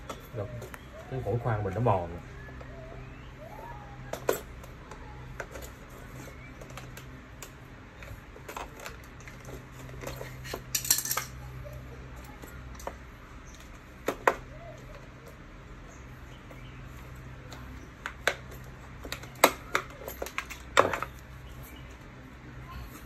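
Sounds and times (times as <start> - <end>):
screwdriver clicking on metal parts: 6.7 - 11.4.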